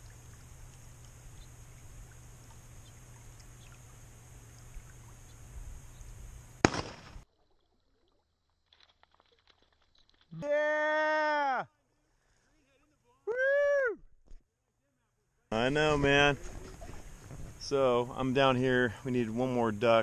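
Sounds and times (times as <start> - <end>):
outdoor hiss and low rumble: 0.0 - 7.2, 14.9 - 20.0
distant gunshot bang: 6.6 - 7.2.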